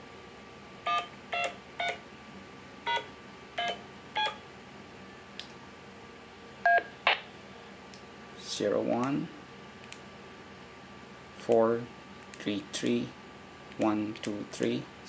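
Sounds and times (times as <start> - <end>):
keypad tone beeps: 0.9 - 2.0, 2.9 - 4.4.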